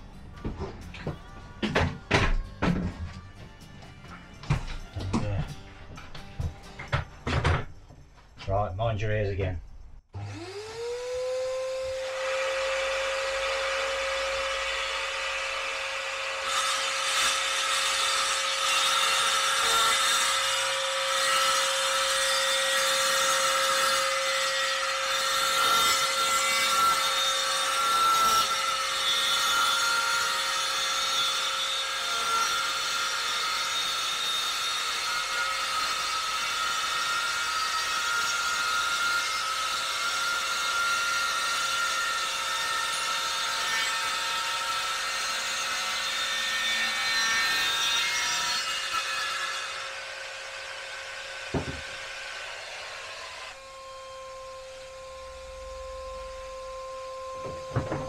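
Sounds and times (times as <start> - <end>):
circular saw whining: 10.1 - 58.0
saw cutting through board: 10.1 - 58.0.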